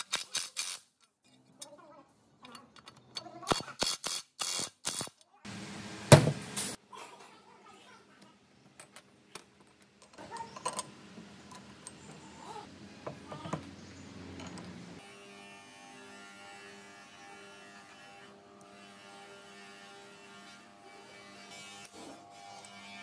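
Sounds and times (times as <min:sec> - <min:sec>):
metal parts clicking on workbench: 0:02.4 - 0:04.0, 0:08.8 - 0:12.6.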